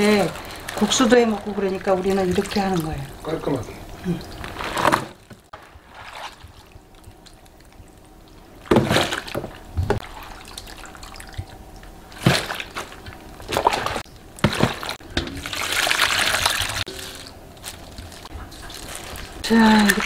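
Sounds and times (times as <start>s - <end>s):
cabbage sloshing in bowl: 0.0s - 3.2s, 5.6s - 7.4s, 12.1s - 20.0s.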